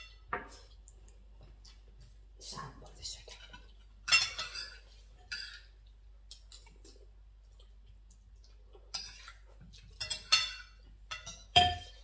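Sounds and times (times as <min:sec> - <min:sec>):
cutlery clinking on plates: 0:03.5 - 0:05.7, 0:08.9 - 0:12.0.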